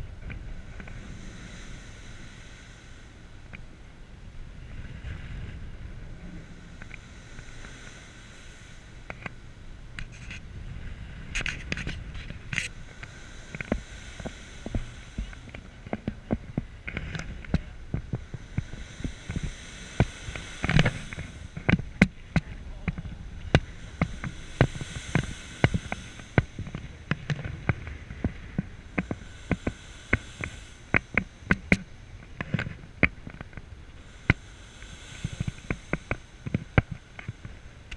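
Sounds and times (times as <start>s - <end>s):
wind on microphone: 0.0s - 37.9s
sharp crackles and pops: 11.3s - 37.9s.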